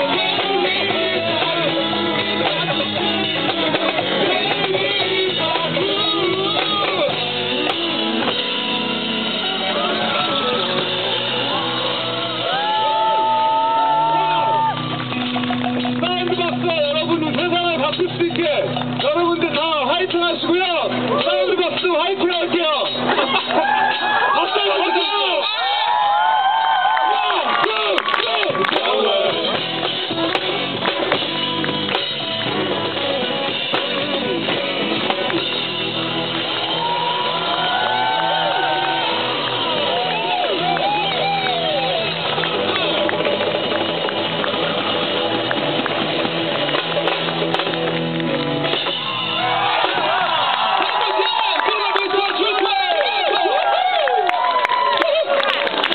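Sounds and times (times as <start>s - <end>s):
held guitar chords: 0.0s - 24.2s, 28.4s - 50.2s
live rock band playing: 0.0s - 26.0s, 27.7s - 53.5s
drum hits: 42.2s - 50.3s.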